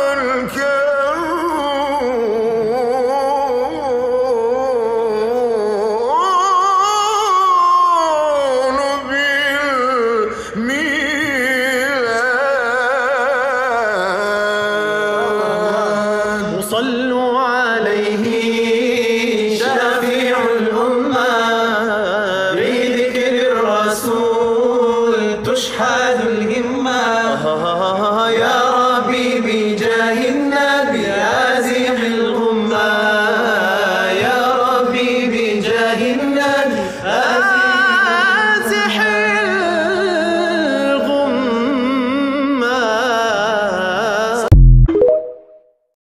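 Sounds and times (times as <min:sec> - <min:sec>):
low vocal drone: 0:00.0 - 0:44.6
man singing ornamented melody: 0:00.0 - 0:45.6.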